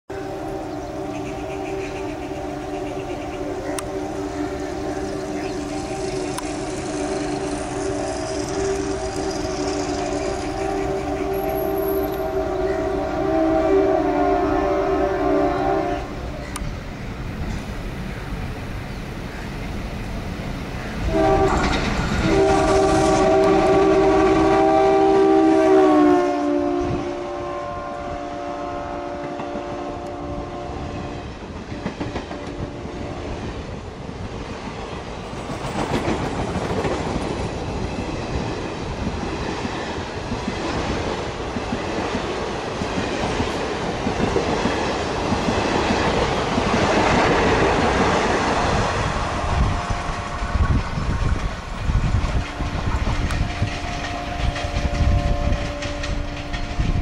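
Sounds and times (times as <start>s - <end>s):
train horn: 0.1s - 16.6s, 21.0s - 33.6s, 45.6s - 57.0s
train coaches rushing past: 0.1s - 57.0s
wheels clattering over rail joints: 21.0s - 24.2s, 50.7s - 57.0s.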